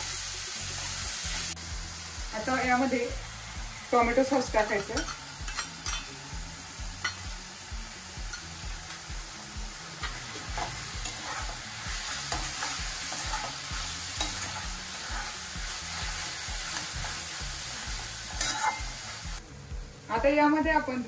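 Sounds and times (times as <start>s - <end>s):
vegetables sizzling in pan: 0.0s - 21.0s
metal spatula scraping pan: 4.6s - 6.2s, 10.0s - 17.3s, 18.2s - 19.0s.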